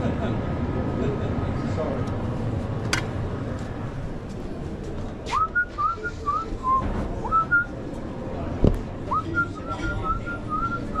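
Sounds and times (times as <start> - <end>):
person whistling a tune: 5.3 - 7.7.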